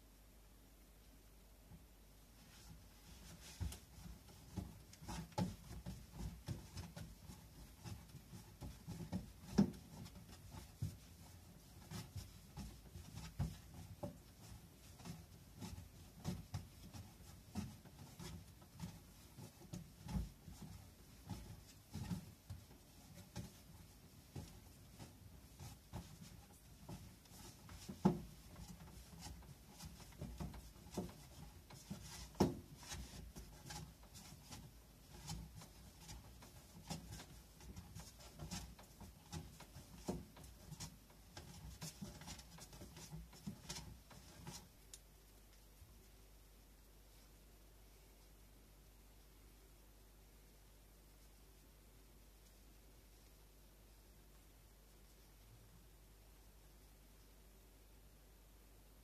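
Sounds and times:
dough kneaded on wooden board: 1.8s - 45.0s.

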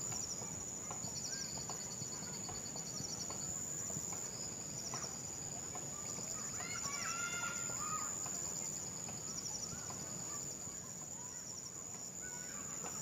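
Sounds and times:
high insect drone: 0.0s - 13.0s.

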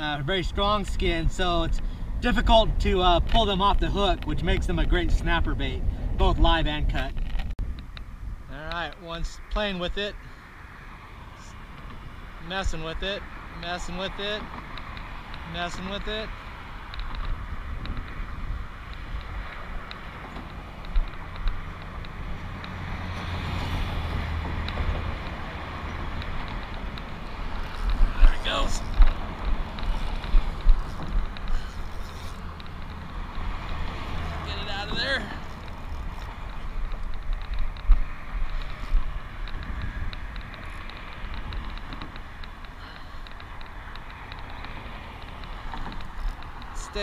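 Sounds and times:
wind buffeting microphone: 0.0s - 47.0s
steady low rumble: 11.1s - 47.0s
faint ticks: 35.5s - 46.8s.

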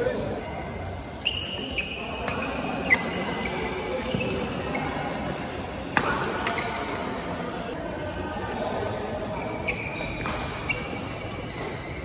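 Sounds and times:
shoes squeaking on court: 0.0s - 7.3s, 9.2s - 12.0s.

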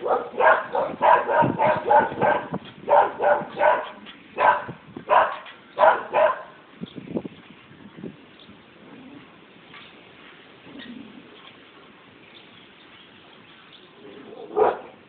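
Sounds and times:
dogs barking: 0.0s - 6.6s, 14.0s - 15.0s.

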